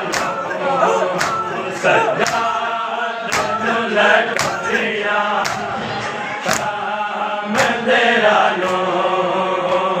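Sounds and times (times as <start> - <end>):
men chanting in unison: 0.0 - 10.0.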